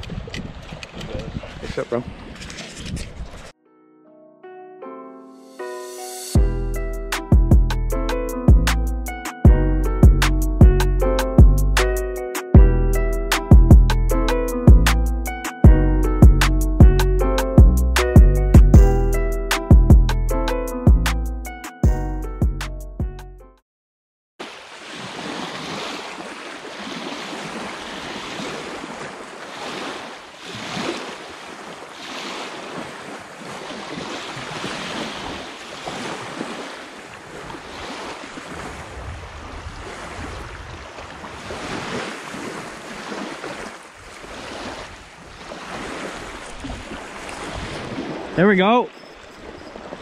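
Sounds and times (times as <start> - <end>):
lake waves lapping on pebbles: 0.0 - 3.5, 24.4 - 50.0
wind rumbling on microphone: 0.0 - 3.5, 37.2 - 42.9, 44.0 - 48.4.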